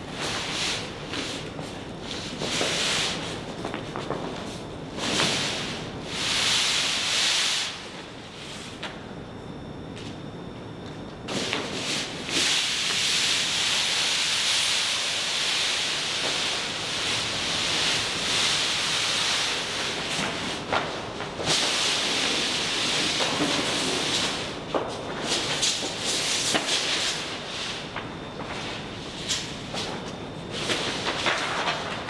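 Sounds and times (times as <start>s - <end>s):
large paper sheet rustling: 24.8s - 32.0s.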